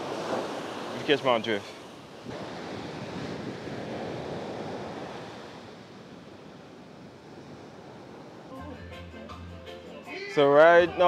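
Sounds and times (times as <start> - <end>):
small waves washing on beach: 0.0 - 8.6.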